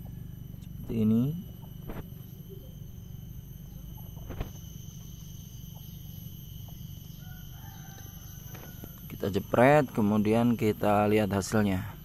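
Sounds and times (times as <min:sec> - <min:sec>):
outdoor background noise: 0:00.0 - 0:12.0
distant rooster crowing: 0:06.7 - 0:09.6.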